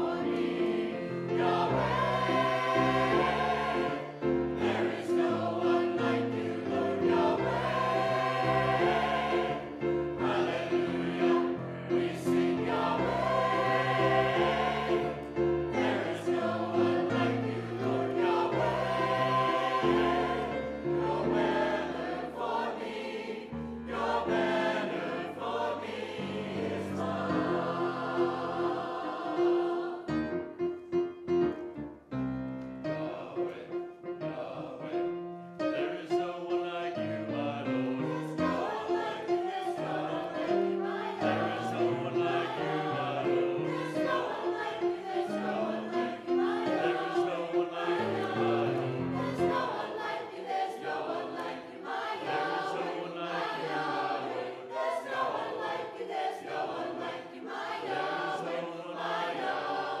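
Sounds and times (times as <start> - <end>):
choir singing a hymn: 0.0 - 31.8, 32.6 - 60.0.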